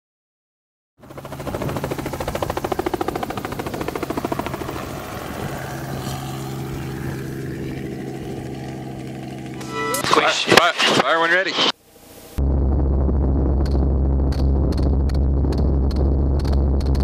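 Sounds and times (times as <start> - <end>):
helicopter engine hum: 1.0 - 10.5, 12.4 - 17.0
helicopter rotor beating: 1.0 - 11.8.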